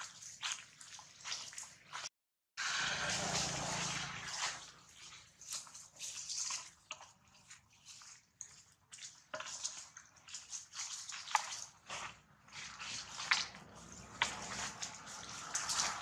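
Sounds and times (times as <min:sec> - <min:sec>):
dry leaves rustling: 0:10.4 - 0:16.0.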